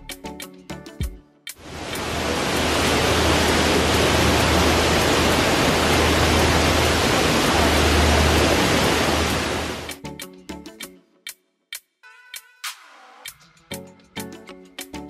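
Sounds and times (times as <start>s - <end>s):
waterfall rushing: 1.6s - 9.9s.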